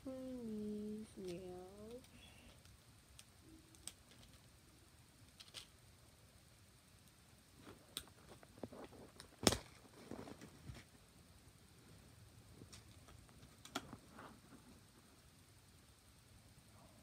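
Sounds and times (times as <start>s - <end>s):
plastic packaging clicks and crinkles: 7.6s - 10.9s.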